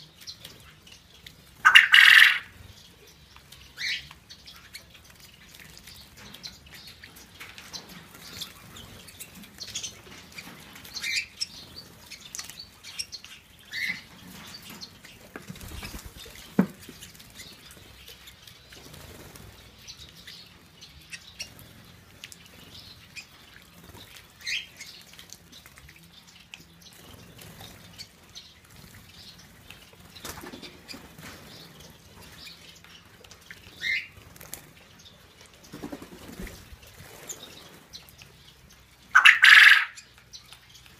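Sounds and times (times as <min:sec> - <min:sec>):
bird chirps: 0:00.0 - 0:18.9, 0:34.9 - 0:40.9
wings flapping: 0:15.4 - 0:17.3, 0:35.7 - 0:37.6.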